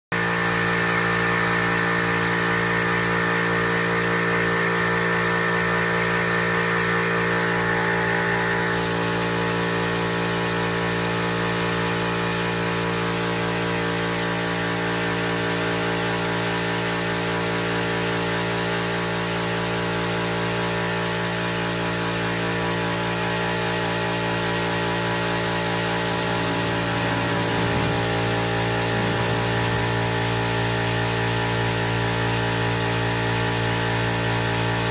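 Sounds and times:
spray gun hissing: 0.2s - 11.2s, 13.5s - 17.6s, 21.0s - 34.6s
mechanical hum with tones: 23.5s - 34.6s
high whine: 23.6s - 32.1s.

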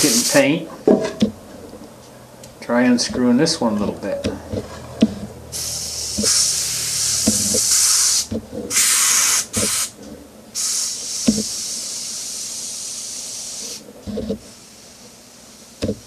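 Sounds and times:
airbrush air hissing: 0.0s - 0.5s, 5.5s - 10.0s, 10.6s - 13.8s.

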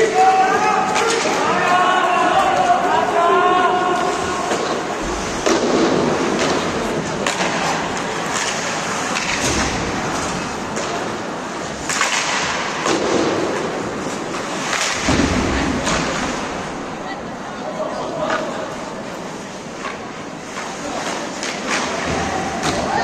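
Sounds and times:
people shouting: 0.0s - 4.6s, 22.1s - 23.0s
hockey sticks clacking puck: 0.0s - 16.6s, 19.7s - 23.0s.

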